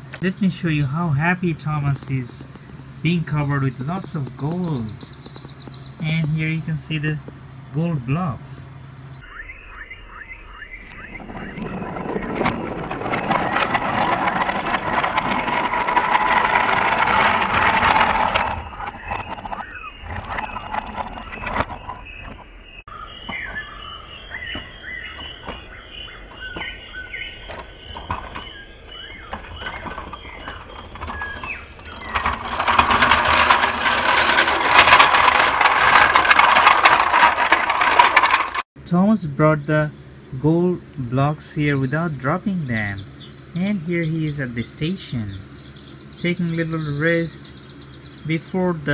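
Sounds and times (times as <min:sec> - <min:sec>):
toy train wheels rattling on track: 0:12.3 - 0:19.6, 0:29.6 - 0:38.7
scattered clicks: 0:29.3 - 0:38.7.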